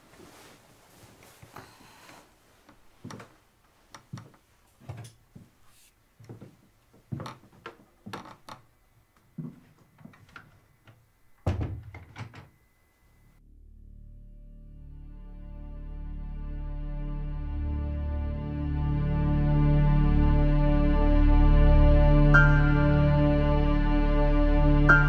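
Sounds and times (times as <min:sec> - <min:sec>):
knocks and thumps: 0:09.5 - 0:12.6
soft music: 0:13.4 - 0:25.0.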